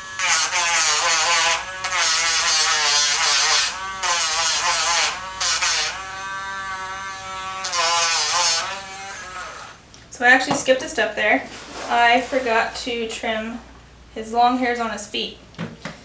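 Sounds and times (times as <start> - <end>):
hissing grind on toenail: 0.0 - 9.7
rotary tool motor whine: 0.0 - 9.8.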